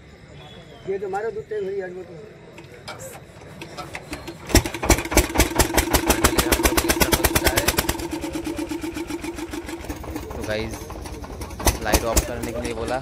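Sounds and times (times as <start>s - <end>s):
scooter engine idling: 3.8s - 13.0s.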